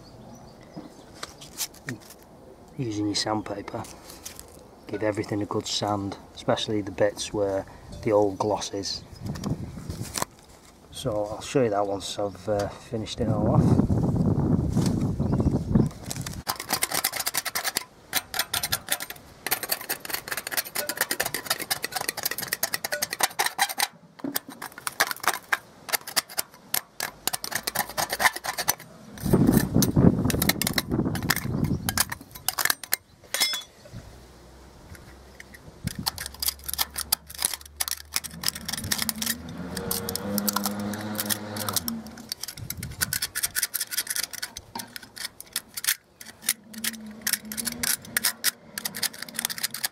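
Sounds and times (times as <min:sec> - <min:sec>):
paint scraper rasping on metal: 0:16.5 - 0:23.9, 0:26.0 - 0:29.8, 0:36.1 - 0:49.9.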